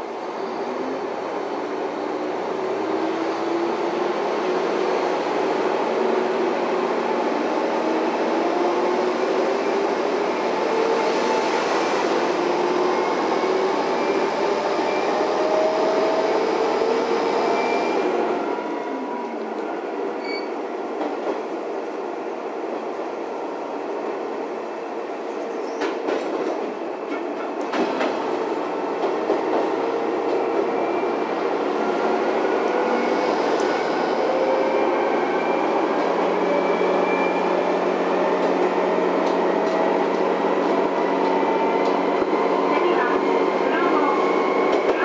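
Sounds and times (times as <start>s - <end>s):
diesel railcar engine rising: 0.0s - 45.0s
train wheels running on rails: 20.8s - 21.9s, 24.1s - 45.0s.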